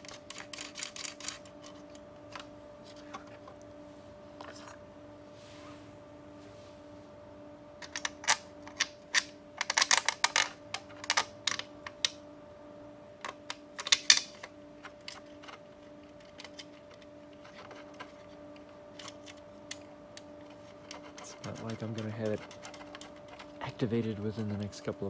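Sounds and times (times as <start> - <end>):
plastic fan clicking and rattling: 0.0 - 3.6, 7.8 - 12.2, 13.2 - 25.0
faint steady hum: 0.0 - 25.0.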